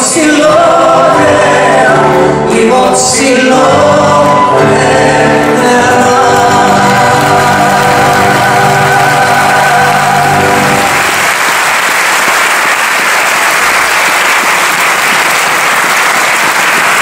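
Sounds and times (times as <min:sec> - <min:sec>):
audience applause: 0:05.4 - 0:17.0.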